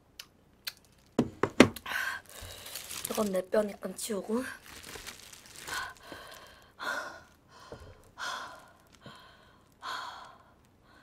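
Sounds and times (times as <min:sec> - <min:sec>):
woman breathing heavily: 0:01.8 - 0:03.1, 0:05.5 - 0:11.0.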